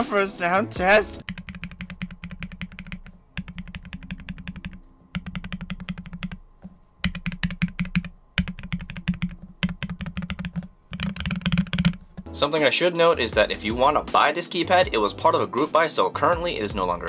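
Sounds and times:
mechanical keys clacking: 0:01.2 - 0:06.4.

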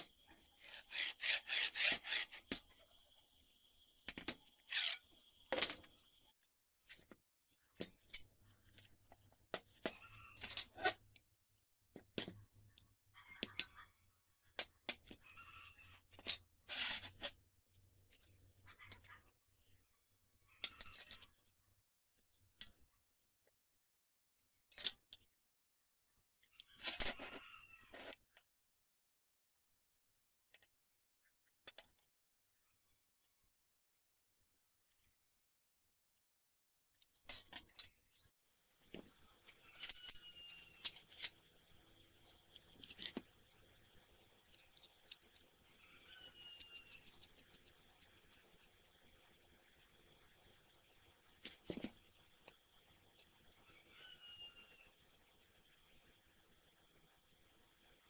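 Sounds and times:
carriage rolling along steel tube: 0:00.0 - 0:03.0, 0:04.0 - 0:05.9, 0:15.2 - 0:17.4, 0:38.9 - 0:57.2.

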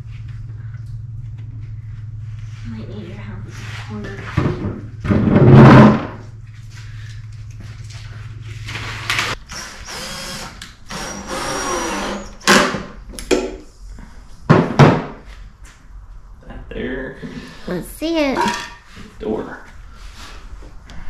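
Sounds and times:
steady low hum: 0:00.0 - 0:11.0, 0:12.8 - 0:21.0
cordless drill driving screws: 0:09.5 - 0:12.4.

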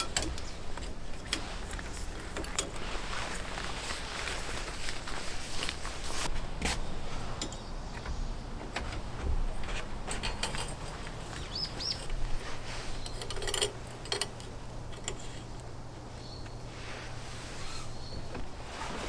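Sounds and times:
pegs clicking on metal rack: 0:00.0 - 0:01.4, 0:07.4 - 0:12.2, 0:13.0 - 0:15.7
rubber gloves rustling: 0:00.0 - 0:07.8, 0:10.7 - 0:19.0
bird chirping: 0:07.4 - 0:08.6, 0:11.2 - 0:13.4, 0:16.1 - 0:16.7, 0:17.6 - 0:18.4.

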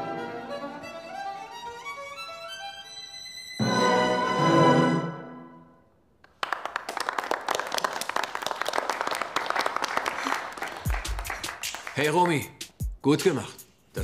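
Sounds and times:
group clapping: 0:06.2 - 0:12.8.

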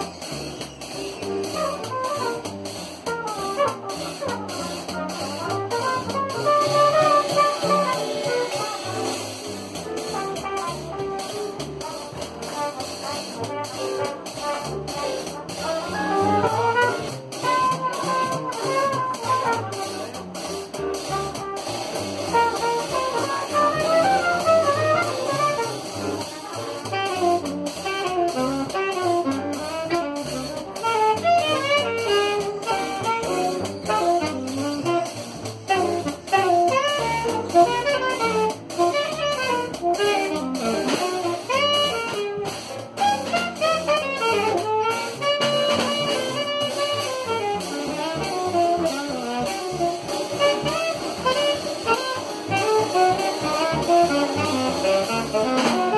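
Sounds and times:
drum kit: 0:00.0 - 0:55.9
saxophones and trumpet: 0:00.0 - 0:55.9
upright bass: 0:00.0 - 0:55.9.

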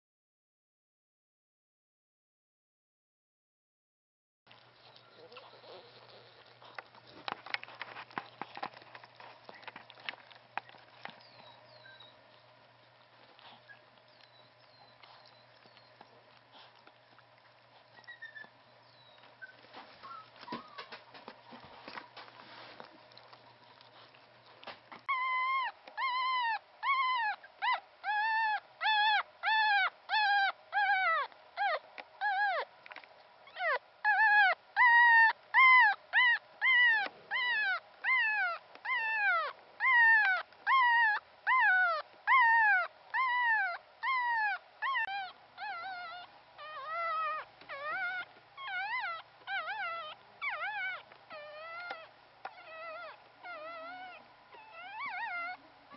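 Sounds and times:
puppy squealing: 0:04.8 - 0:06.4, 0:10.7 - 0:12.4, 0:13.4 - 0:16.7, 0:17.9 - 0:21.0, 0:25.0 - 0:32.7, 0:33.4 - 0:55.7.

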